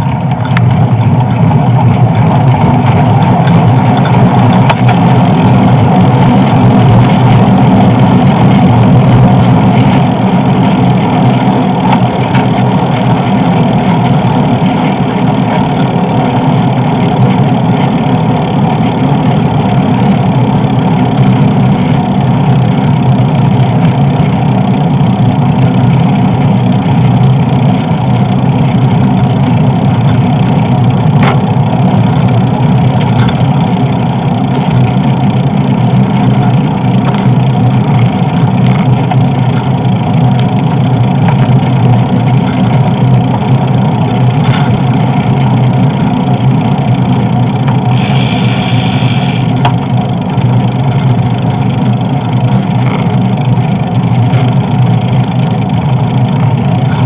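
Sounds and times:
wind and road noise: 0.0 - 57.0.

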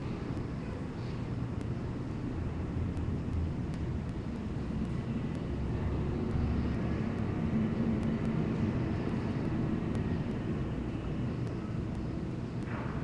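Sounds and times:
distant city traffic rumble: 0.0 - 13.0.

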